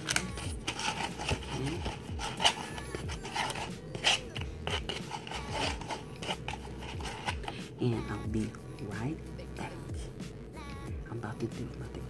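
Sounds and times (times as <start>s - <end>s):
spoon scraping a foam cup: 0.0s - 7.8s.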